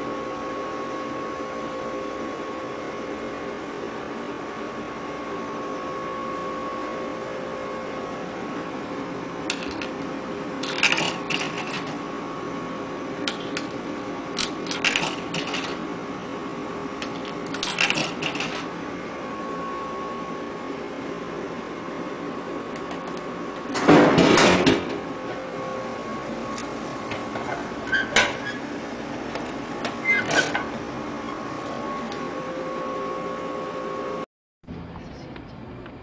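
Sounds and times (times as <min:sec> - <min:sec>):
steady hum: 0:00.0 - 0:36.0
coins rattling through coin mechanism: 0:10.6 - 0:11.9, 0:17.1 - 0:18.7.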